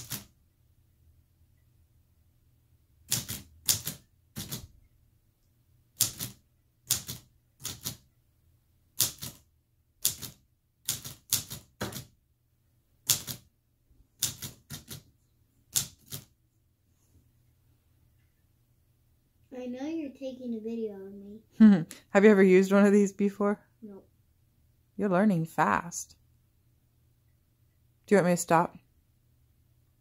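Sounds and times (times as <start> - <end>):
typewriter key clacks: 3.1 - 4.7, 6.0 - 8.0, 9.0 - 9.4, 10.0 - 12.1.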